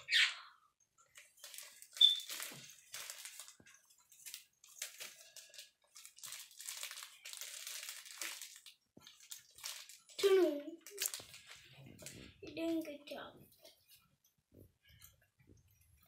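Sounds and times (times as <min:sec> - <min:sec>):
plastic bag crinkling: 0:01.1 - 0:12.8
sharp high squeak: 0:02.0 - 0:02.3.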